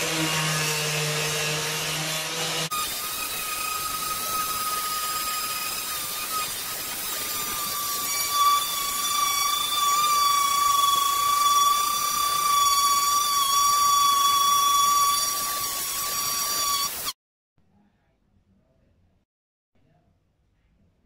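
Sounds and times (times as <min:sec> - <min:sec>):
angle grinder grinding metal: 0:00.0 - 0:17.2.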